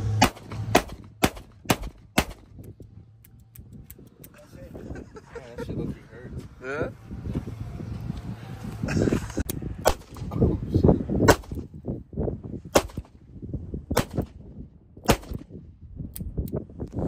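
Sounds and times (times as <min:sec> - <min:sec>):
revolver gunshots: 0:00.1 - 0:02.6, 0:09.8 - 0:10.3, 0:11.2 - 0:11.7, 0:12.7 - 0:13.2, 0:13.9 - 0:14.4, 0:15.0 - 0:15.5.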